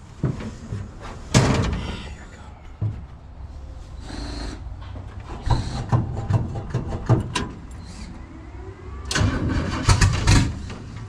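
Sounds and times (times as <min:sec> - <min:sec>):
car engine cranking on starter: 0:09.0 - 0:11.0.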